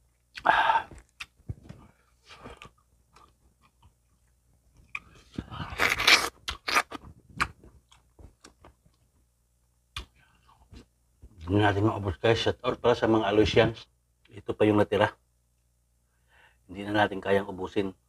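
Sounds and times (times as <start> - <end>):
person chewing crunchy chicken: 4.8 - 8.5.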